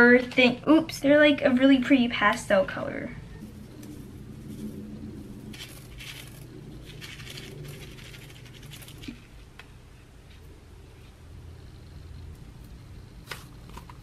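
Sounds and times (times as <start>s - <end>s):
plastic packets shaken: 5.4s - 9.2s.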